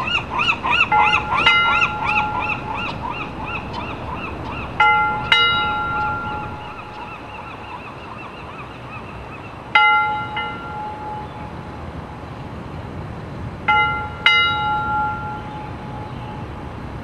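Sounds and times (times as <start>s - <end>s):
street noise: 0.0s - 17.0s.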